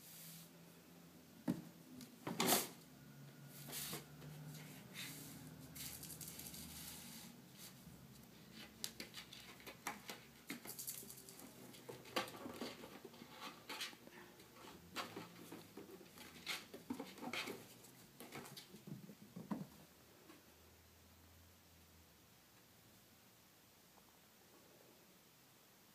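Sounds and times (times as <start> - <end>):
kittens' paws pattering on wood: 7.6 - 19.8.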